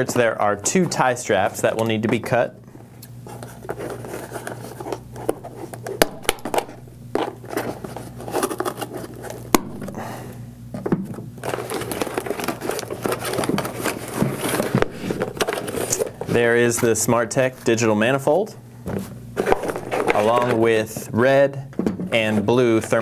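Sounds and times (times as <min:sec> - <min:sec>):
cardboard scraping and rustling: 0:03.2 - 0:10.0, 0:11.4 - 0:18.3, 0:18.9 - 0:21.1.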